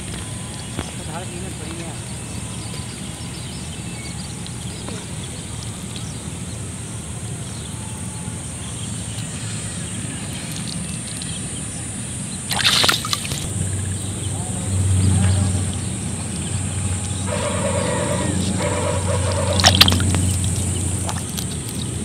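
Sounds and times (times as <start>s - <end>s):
splash in shallow water: 10.2s - 14.0s, 17.2s - 22.0s.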